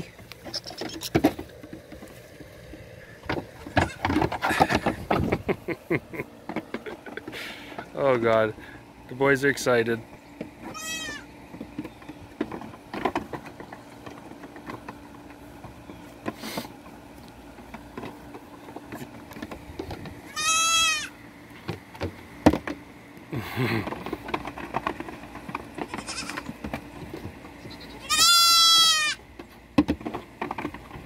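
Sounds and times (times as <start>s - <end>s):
hooves knocking on wood: 0.2s - 5.5s, 11.5s - 20.3s, 23.8s - 31.0s
young goats bleating: 3.6s - 4.1s, 10.6s - 11.3s, 20.2s - 21.2s, 25.8s - 26.6s, 27.6s - 29.2s.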